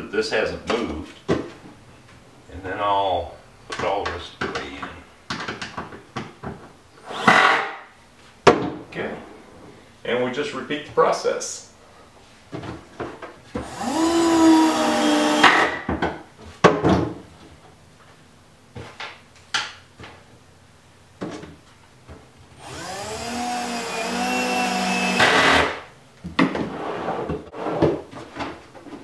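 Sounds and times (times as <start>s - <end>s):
cordless drill whine: 13.6s - 15.4s, 22.6s - 25.8s.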